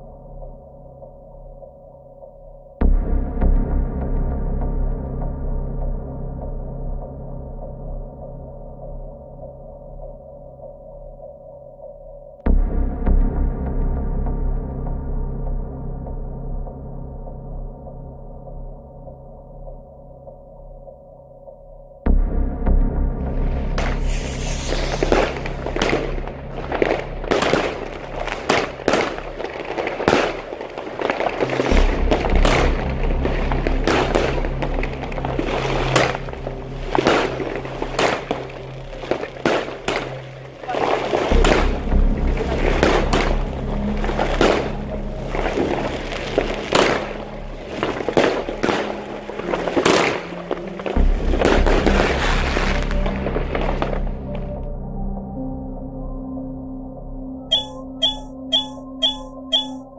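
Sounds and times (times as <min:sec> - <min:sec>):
background music: 0:00.0 - 0:59.9
firework launch bangs and bursts: 0:23.8 - 0:36.3, 0:36.9 - 0:38.4, 0:39.0 - 0:40.4, 0:46.7 - 0:47.2.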